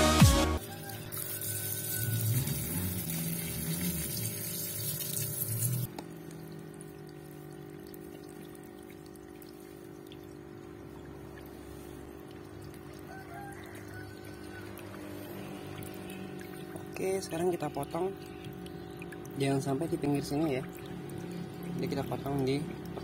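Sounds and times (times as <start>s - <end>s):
electronic music: 0.0s - 0.6s
water spraying from leaking pipe: 0.6s - 5.9s.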